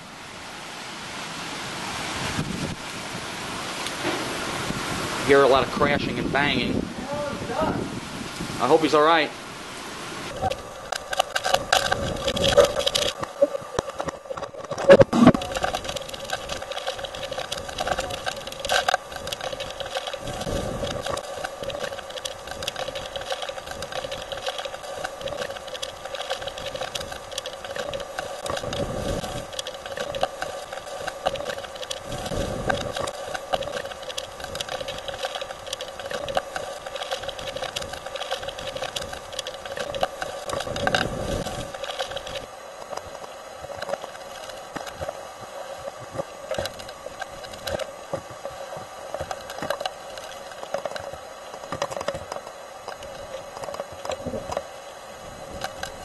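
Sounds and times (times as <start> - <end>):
wind gusts buffeting vehicle: 2.1 - 2.9, 4.2 - 9.2, 10.3 - 42.5
steady hum: 2.2 - 56.0
rain pelting windshield: 10.2 - 56.0.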